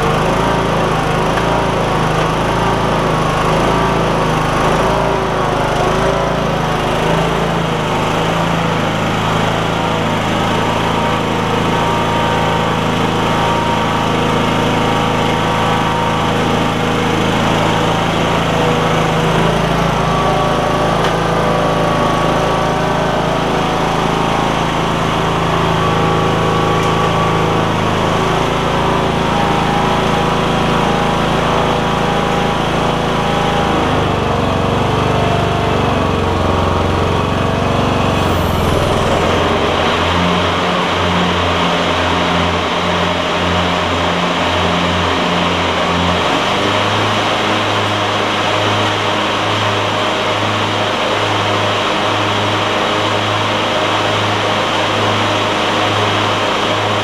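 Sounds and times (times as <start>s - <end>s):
lawn tractor engine running: 0.0s - 57.0s
mower deck turning: 0.1s - 31.4s.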